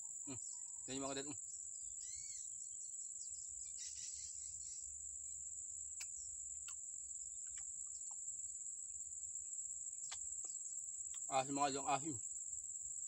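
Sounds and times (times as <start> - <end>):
high-pitched insect drone: 0.0 - 13.0
faint sharp ticks: 6.0 - 6.8, 10.0 - 11.3.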